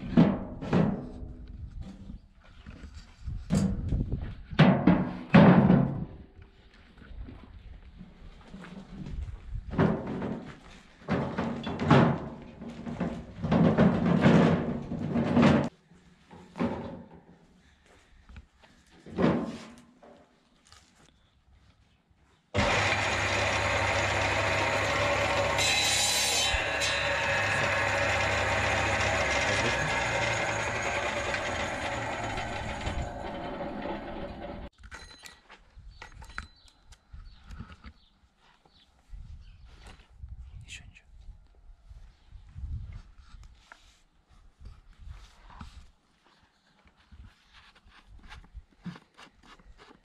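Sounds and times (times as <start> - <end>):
wheelbarrow rattling and clanking: 9.8 - 15.7
circular saw running: 22.6 - 34.7.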